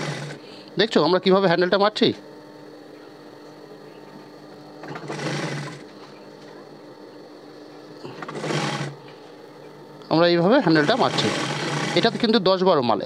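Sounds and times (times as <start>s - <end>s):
sewing machine stitching: 0.0s - 0.4s, 4.8s - 5.9s, 8.1s - 9.0s, 10.6s - 12.4s
steady hum: 0.0s - 13.0s.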